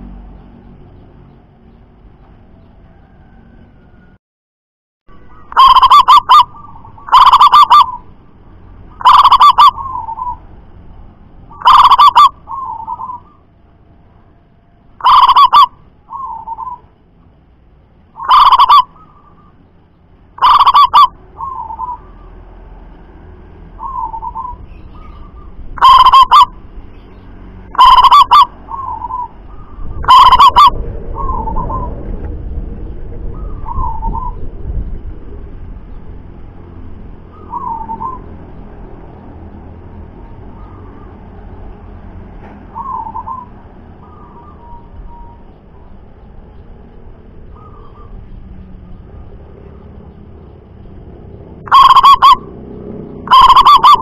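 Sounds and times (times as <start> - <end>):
dove cooing: 5.3 - 8.0, 9.0 - 10.4, 11.5 - 13.4, 15.0 - 16.8, 18.2 - 19.5, 20.4 - 22.2, 23.8 - 26.5, 27.7 - 32.0, 33.4 - 34.5, 42.7 - 45.4, 47.5 - 48.4, 51.6 - 52.6, 53.2 - 54.0
low background rumble: 15.7 - 52.5.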